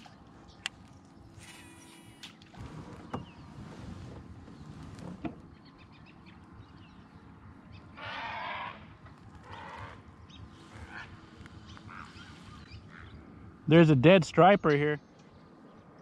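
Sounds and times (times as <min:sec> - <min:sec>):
animal calling harshly: 0:08.0 - 0:10.0.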